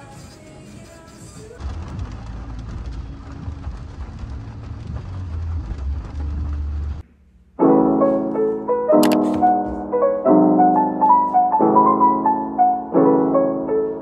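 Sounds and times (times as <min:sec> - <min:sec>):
rain on car roof: 0:01.0 - 0:07.0
low rumble: 0:01.6 - 0:07.0
solo piano music: 0:07.6 - 0:14.0.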